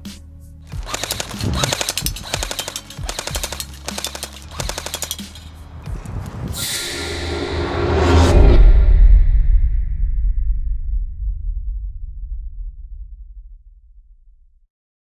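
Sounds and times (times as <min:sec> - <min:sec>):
airsoft gun firing full-auto: 0:00.7 - 0:05.4.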